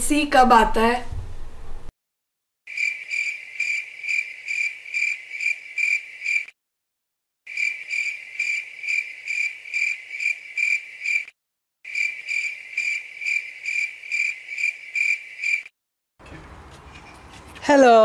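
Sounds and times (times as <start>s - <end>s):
cricket chirping: 2.7s - 6.5s, 7.5s - 11.3s, 11.9s - 15.7s.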